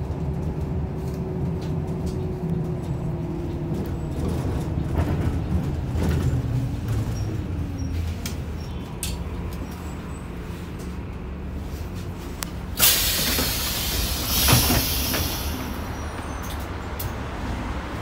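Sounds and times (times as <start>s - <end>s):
bus diesel engine running: 0.0s - 18.0s
compressed air hiss: 12.8s - 15.8s.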